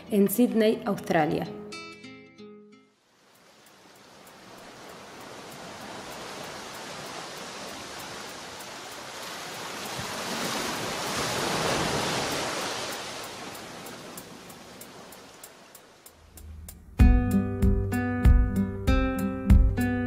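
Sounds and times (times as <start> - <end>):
waves washing onto beach: 3.0 - 16.3.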